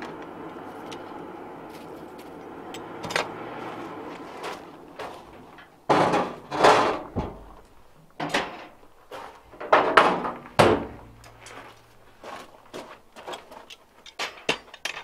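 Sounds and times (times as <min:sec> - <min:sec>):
metal tools knocking and clanking: 0:05.6 - 0:08.8, 0:09.6 - 0:11.6, 0:13.6 - 0:15.0.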